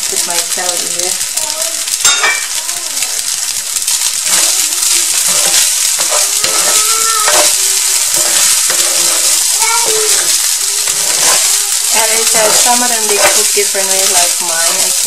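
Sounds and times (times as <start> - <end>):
fried rice sizzling in a pan: 0.0 - 15.0
wooden spatula stirring: 3.8 - 15.0.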